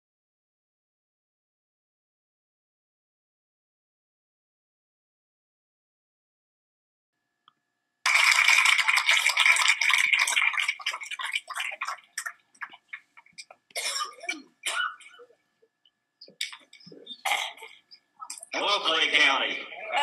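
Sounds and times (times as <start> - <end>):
audience applauding: 8.1 - 13.2.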